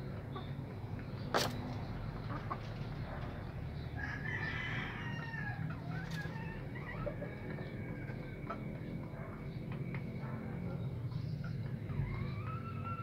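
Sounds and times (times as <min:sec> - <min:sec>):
rooster crowing: 0:04.0 - 0:07.2.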